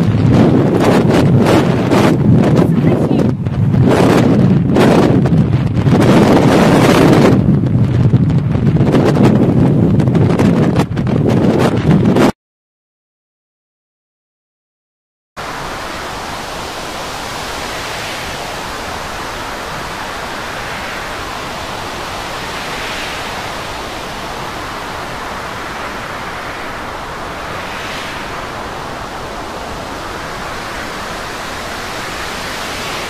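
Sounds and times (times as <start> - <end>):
storm wind: 0.0 - 12.3, 15.4 - 33.0
sea rushing: 15.4 - 33.0.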